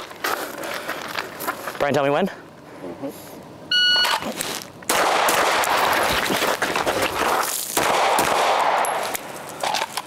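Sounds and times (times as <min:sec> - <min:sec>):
airsoft gun shots: 0:04.9 - 0:06.0, 0:07.8 - 0:09.1.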